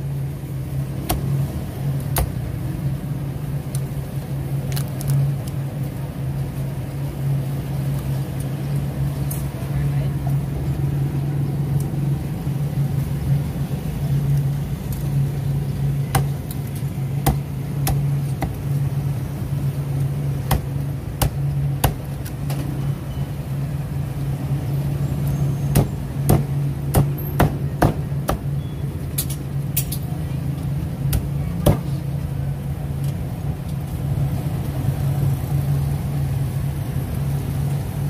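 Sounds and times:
cleaver chopping on wooden block: 17.2 - 18.6.

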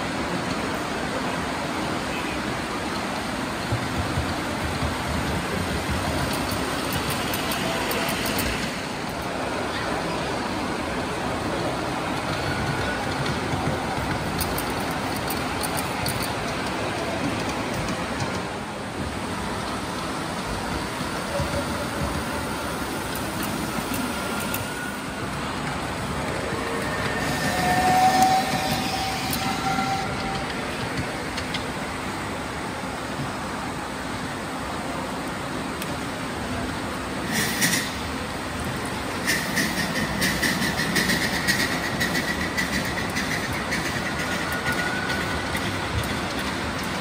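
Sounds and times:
small wheels rumbling on rails: 2.9 - 10.2, 11.1 - 32.4, 37.2 - 47.0.

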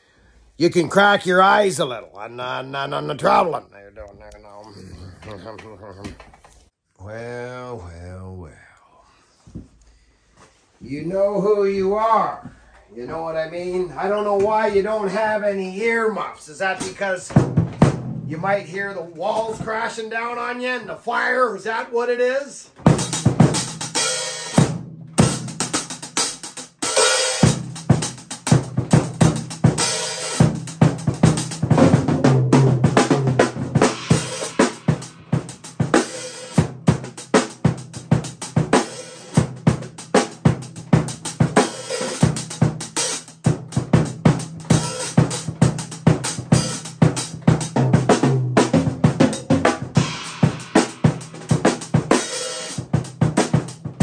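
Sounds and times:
drum kit played with sticks: 13.1 - 20.0, 22.7 - 54.0.

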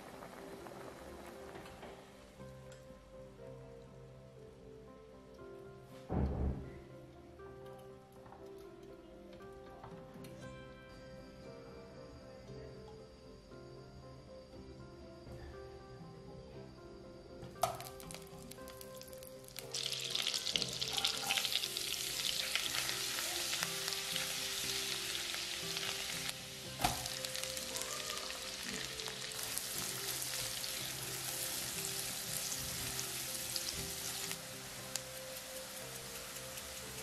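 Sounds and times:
butter and onion sizzling: 0.0 - 2.3, 17.6 - 37.0.

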